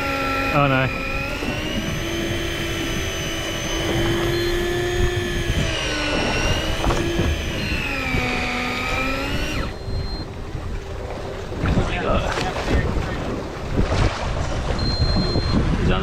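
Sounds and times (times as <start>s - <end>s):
electric fishing reel motor whining: 0.0s - 10.3s.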